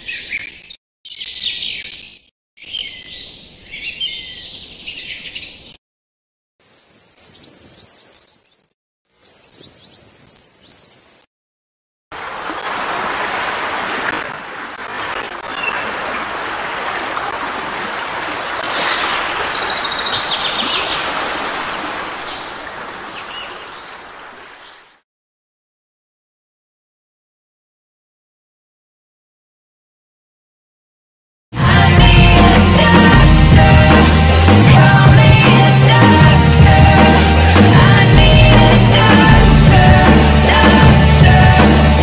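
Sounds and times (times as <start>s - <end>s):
birds chirping: 0.0s - 5.8s, 6.6s - 11.3s, 15.0s - 25.0s
cricket chirring: 6.6s - 11.2s, 17.4s - 24.4s
sea waves: 12.1s - 25.0s.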